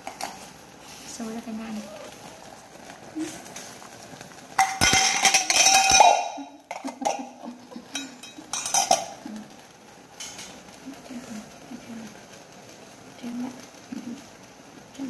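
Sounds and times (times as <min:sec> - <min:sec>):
metal lid clinking on pot: 0:04.6 - 0:09.2
metal tongs scraping a pot: 0:04.6 - 0:09.2.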